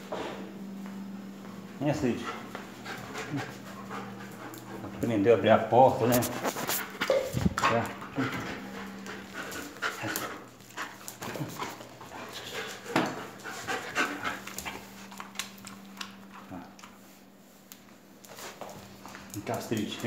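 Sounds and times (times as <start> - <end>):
dog panting: 1.9 - 17.0.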